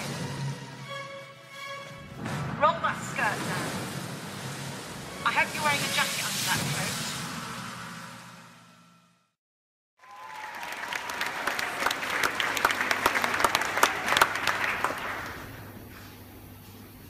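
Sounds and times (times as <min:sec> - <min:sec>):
audience applauding: 0:10.0 - 0:15.8.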